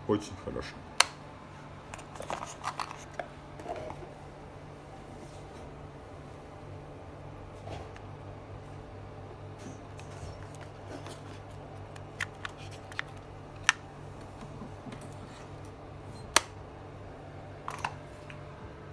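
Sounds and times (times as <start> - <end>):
plastic case being handled: 2.0 - 4.0, 9.9 - 15.0.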